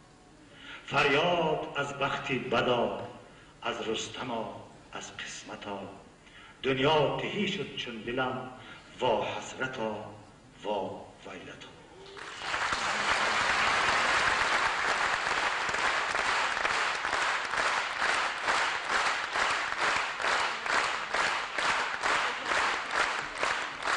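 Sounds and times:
audience applauding: 0:12.1 - 0:23.9.

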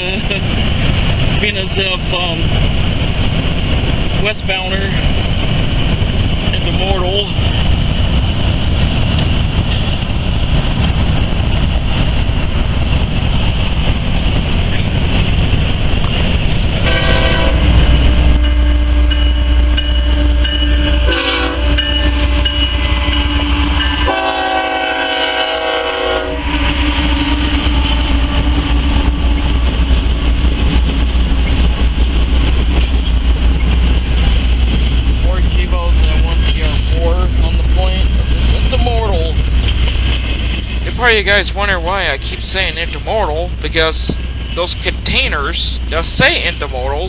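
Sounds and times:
train rumbling on rails: 0:00.0 - 0:47.0
locomotive air horn blasts: 0:16.8 - 0:17.7, 0:18.3 - 0:28.7.

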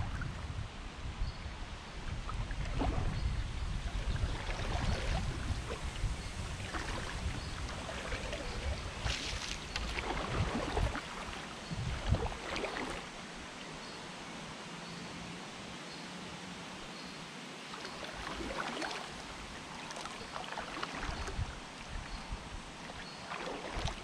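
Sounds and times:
wind rumble on microphone: 0:00.0 - 0:13.5, 0:20.8 - 0:24.0
kayak paddle splashing: 0:02.1 - 0:13.5, 0:17.7 - 0:24.0.

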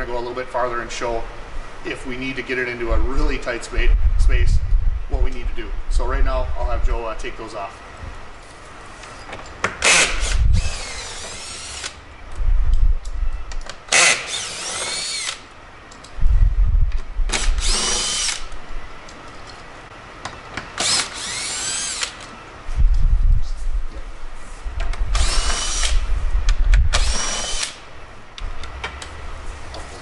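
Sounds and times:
cordless drill whining: 0:09.8 - 0:12.0, 0:13.9 - 0:15.4, 0:17.4 - 0:18.5, 0:20.8 - 0:22.3, 0:25.1 - 0:26.0, 0:26.9 - 0:27.8.

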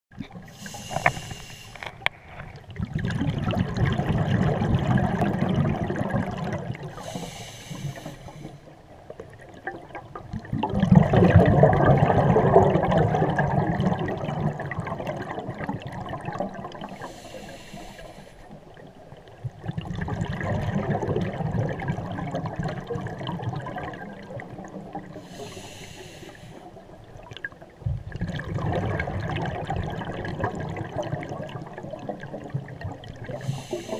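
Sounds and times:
regulator inhalation hiss: 0:00.5 - 0:01.9, 0:07.0 - 0:08.6, 0:17.0 - 0:18.5, 0:25.2 - 0:26.6, 0:33.4 - 0:33.9
bubbling exhalation underwater: 0:02.7 - 0:07.0, 0:09.4 - 0:17.0, 0:19.6 - 0:25.2, 0:28.0 - 0:33.9.

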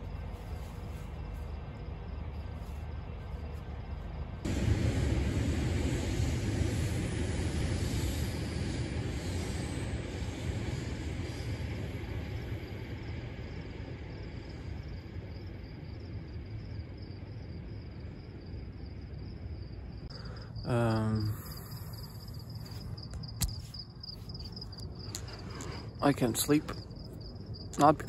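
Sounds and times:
cricket chirping: 0:00.0 - 0:04.5, 0:06.8 - 0:28.0
sharp click: 0:23.1 - 0:23.7.

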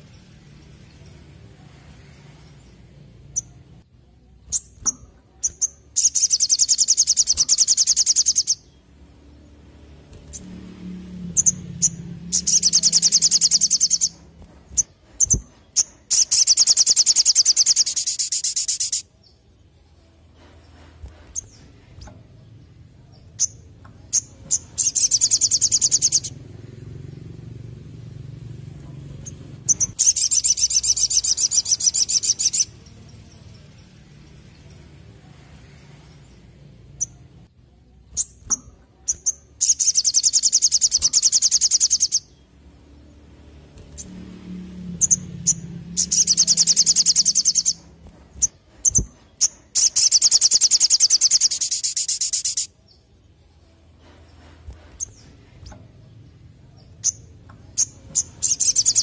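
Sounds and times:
bird rattling trills: 0:04.5 - 0:08.7, 0:11.3 - 0:19.0, 0:29.2 - 0:32.8, 0:38.2 - 0:42.3, 0:45.0 - 0:52.7, 0:57.0 - 0:59.0
short sharp bird chirps: 0:45.0 - 0:52.8.

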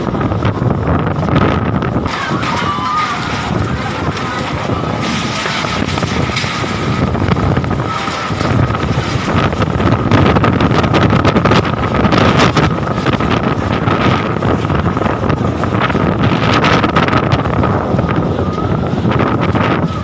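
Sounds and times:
tarpaulin flapping and rattling: 0:00.0 - 0:20.0
wind gusts buffeting microphone: 0:00.0 - 0:20.0.

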